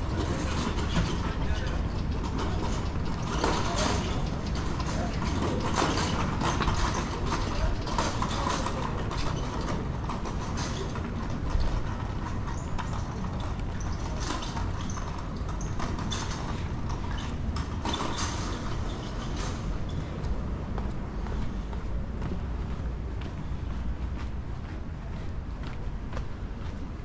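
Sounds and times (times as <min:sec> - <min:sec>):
low city rumble: 0:00.0 - 0:27.0
footsteps on pavement: 0:18.7 - 0:27.0.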